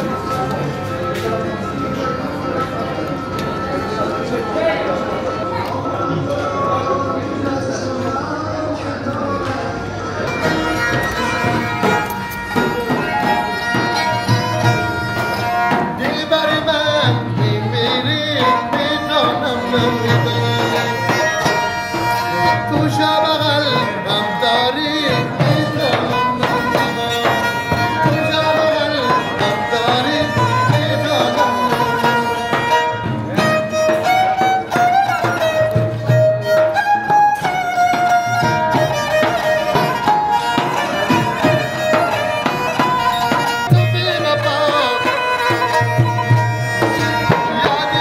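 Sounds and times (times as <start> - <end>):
bowed fiddle melody: 0.0 - 7.2, 9.8 - 48.0
frame drum beating: 10.4 - 23.1.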